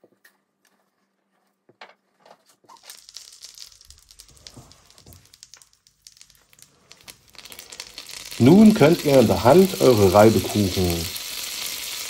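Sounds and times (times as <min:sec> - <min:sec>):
butter sizzling in a frying pan: 0:02.7 - 0:12.0.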